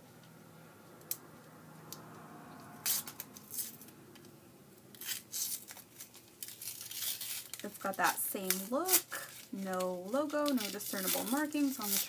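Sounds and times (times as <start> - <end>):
wrapper tearing and crinkling: 2.8 - 3.9, 4.9 - 12.0.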